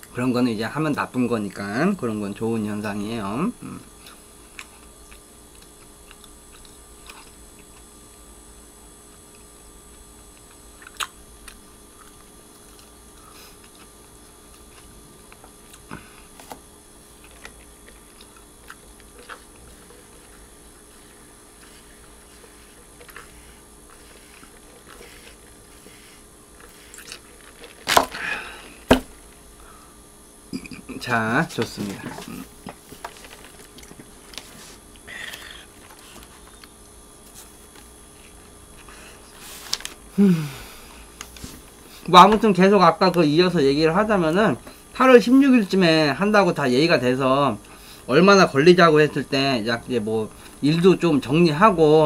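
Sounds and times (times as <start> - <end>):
faint room hum: 0.0 - 52.0
person chewing: 4.0 - 7.9, 10.3 - 28.8, 32.2 - 37.5.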